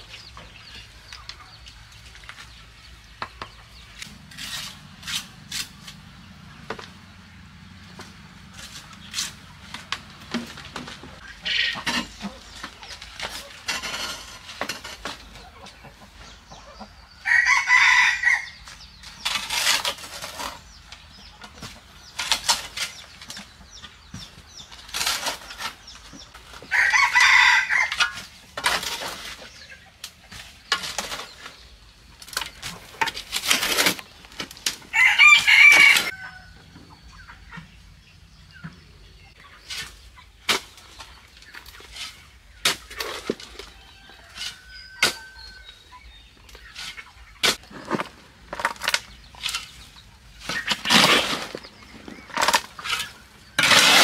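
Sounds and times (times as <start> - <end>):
shovel scraping soil in wheelbarrow: 3.9 - 6.1, 8.0 - 15.4, 17.7 - 36.2, 39.6 - 54.0
rooster crowing: 17.2 - 18.6, 26.7 - 28.0, 34.9 - 36.6.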